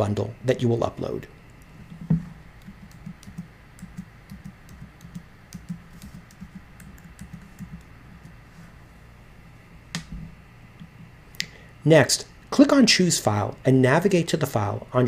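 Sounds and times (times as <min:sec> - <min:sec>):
keyboard typing: 0:02.6 - 0:08.4.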